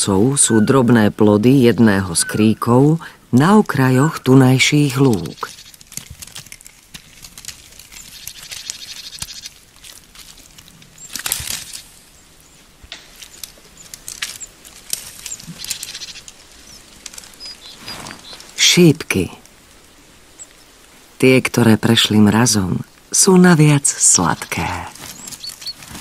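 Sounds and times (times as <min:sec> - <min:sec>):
deer browsing in rustling branches: 0:03.6 - 0:18.8, 0:19.4 - 0:21.2, 0:24.0 - 0:26.0.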